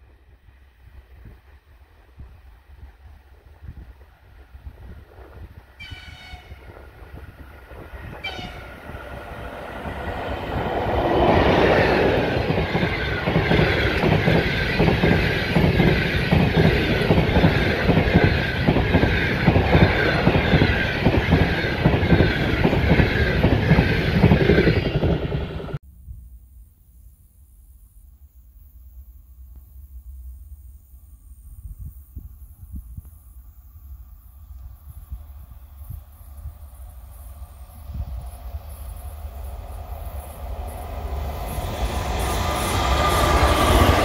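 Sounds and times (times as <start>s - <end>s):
locomotive horn blasts: 5.8s - 6.7s, 8.1s - 9.0s
train wheels clattering over rails: 9.0s - 25.8s.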